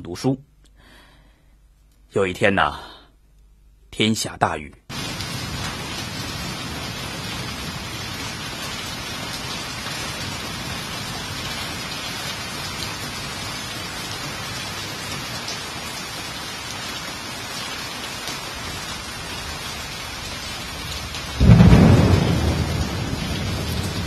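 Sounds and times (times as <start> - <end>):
heavy rain pouring: 4.9 - 24.0.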